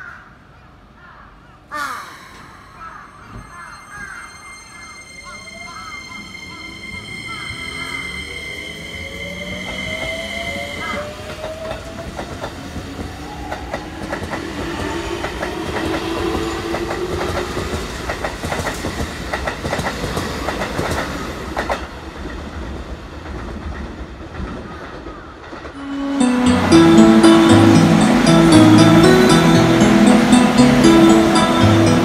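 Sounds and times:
music: 0:25.8 - 0:32.0.

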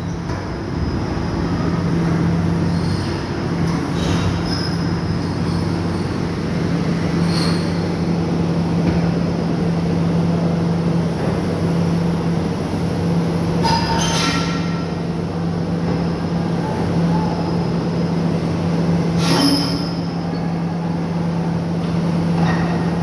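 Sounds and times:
metallic squeal from machinery: 0:04.0 - 0:06.2, 0:07.2 - 0:07.8, 0:13.6 - 0:14.7, 0:19.2 - 0:20.4.

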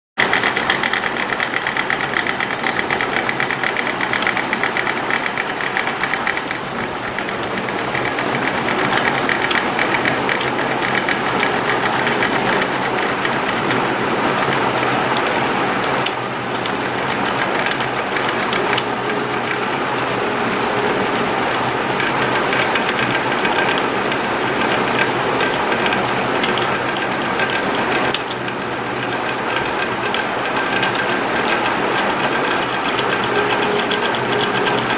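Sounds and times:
pen plotter motors buzzing: 0:00.2 - 0:34.9.

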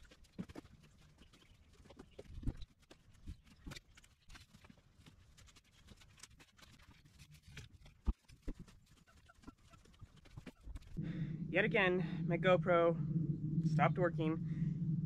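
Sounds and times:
dry weeds rustling and crackling: 0:00.0 - 0:11.0.

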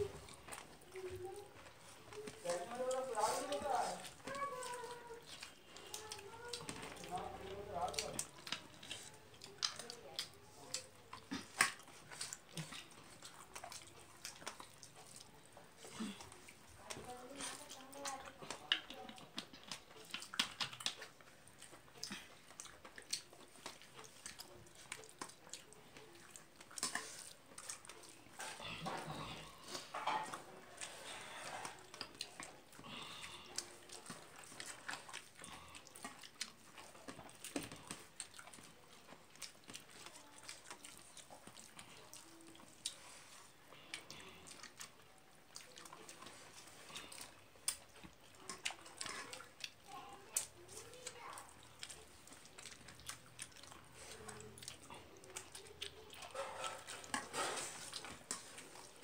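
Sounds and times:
chewing and mouth noises: 0:00.0 - 0:59.0.

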